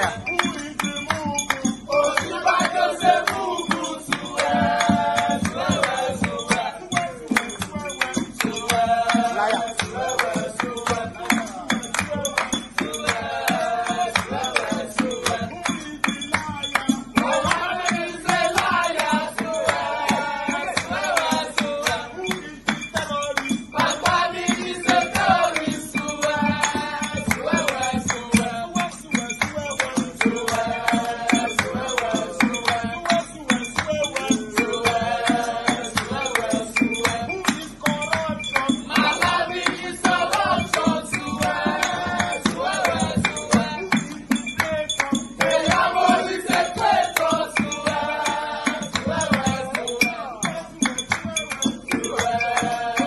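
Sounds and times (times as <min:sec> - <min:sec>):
fast percussion beat: 0:00.0 - 0:53.0
music with singing: 0:00.0 - 0:53.0.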